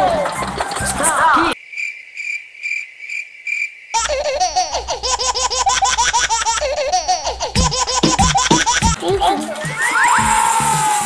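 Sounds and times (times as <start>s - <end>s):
high-pitched rapid laughing effect: 4.0s - 11.0s.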